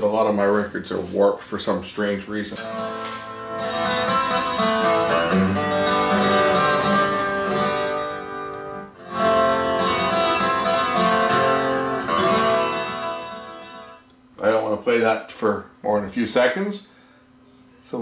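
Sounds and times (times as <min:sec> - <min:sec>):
guitar music from vinyl record: 0:02.5 - 0:14.1.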